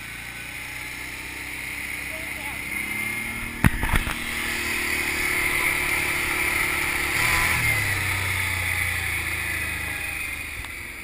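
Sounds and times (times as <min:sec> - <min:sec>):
atv engine running: 0:00.0 - 0:11.0.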